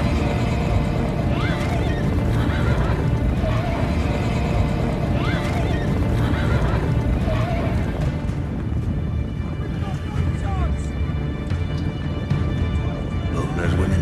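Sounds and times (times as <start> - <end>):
horses whinnying: 0.0 - 8.0
horses galloping: 0.0 - 14.0.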